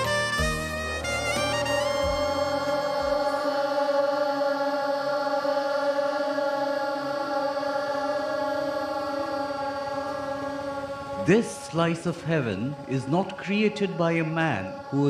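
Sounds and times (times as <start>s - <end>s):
low backing music notes: 0.0s - 4.4s
children chanting in unison: 1.3s - 15.0s.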